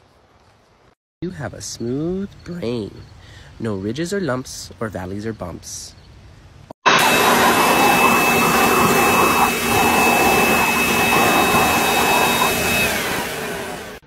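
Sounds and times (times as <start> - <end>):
leaf blower running: 6.9 - 14.0.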